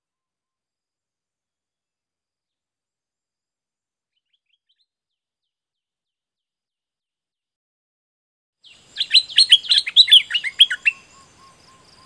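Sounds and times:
bird singing whistled notes: 8.6 - 12.0.

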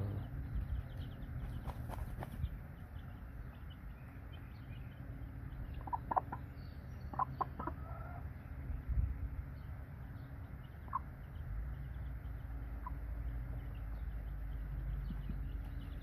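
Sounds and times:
chicks peeping: 0.0 - 16.0
hen clucking: 5.6 - 8.4, 10.7 - 11.4, 12.6 - 16.0.

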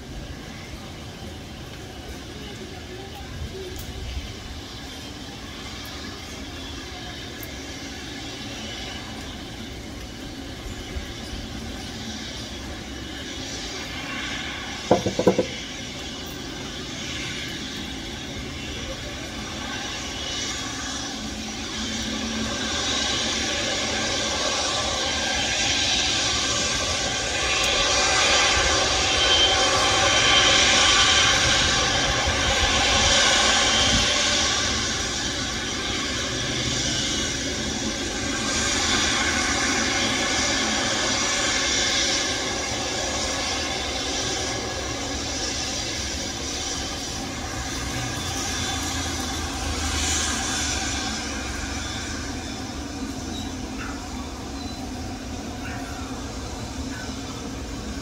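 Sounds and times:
airliner engines roaring: 0.0 - 58.0
sharp knocks: 14.9 - 15.5.

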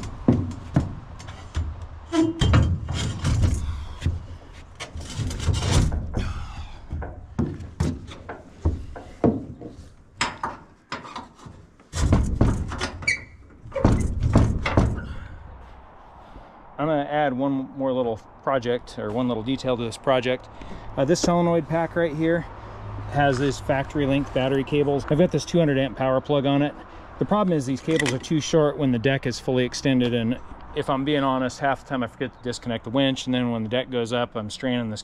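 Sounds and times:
heavy steel winch clunking on wood: 0.0 - 15.3.

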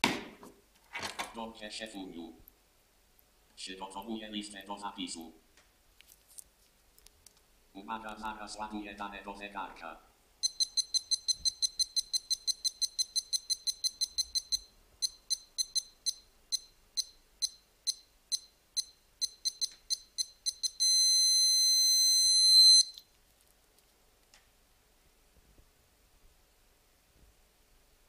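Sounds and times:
long steady watch beep: 10.4 - 23.0.

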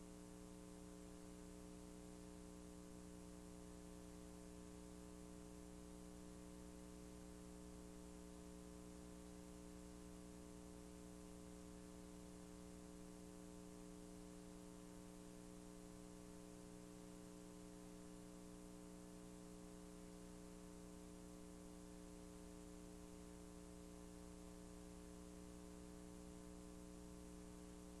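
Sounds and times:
electrical hum with faint hiss: 0.0 - 28.0.

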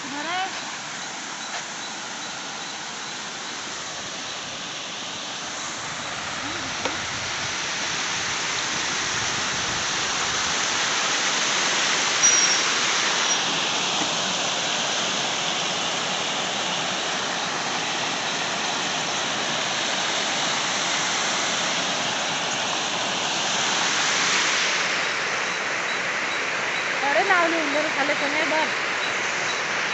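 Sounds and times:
water rushing over causeway: 0.0 - 29.9
high squeak: 12.2 - 13.4.

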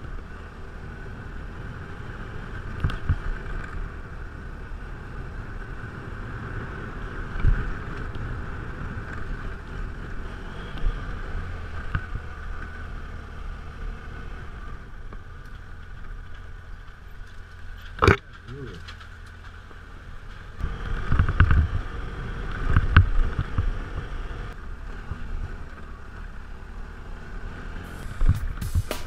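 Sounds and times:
motorcycle engine running: 20.6 - 29.0
wind noise on microphone: 27.9 - 29.0.

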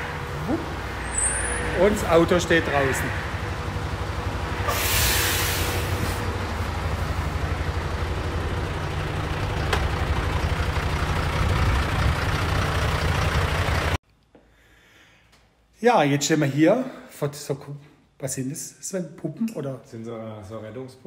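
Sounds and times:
diesel engine idling: 0.0 - 14.0
loud air hiss: 4.6 - 6.3.

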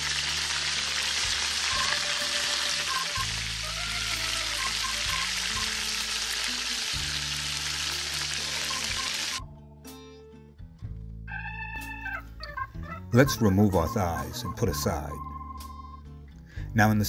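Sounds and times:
hot fat sizzling: 0.0 - 9.4
soft background music: 0.0 - 17.0.

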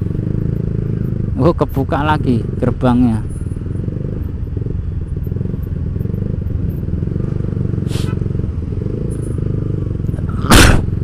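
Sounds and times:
motorcycle engine at low revs: 0.0 - 11.0.

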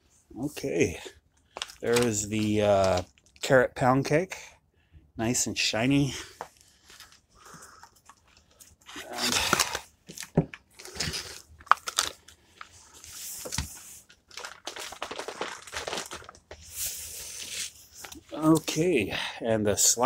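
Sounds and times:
plastic packaging crinkling: 1.5 - 3.5, 8.0 - 18.7.

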